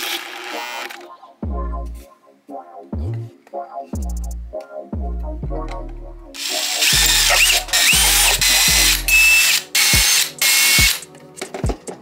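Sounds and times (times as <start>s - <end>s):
cordless drill boring into plastic: 0.0s - 1.0s, 6.4s - 11.0s.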